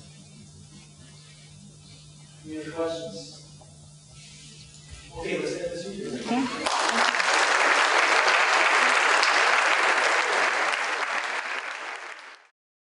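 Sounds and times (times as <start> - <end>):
audience applauding: 6.6 - 12.5.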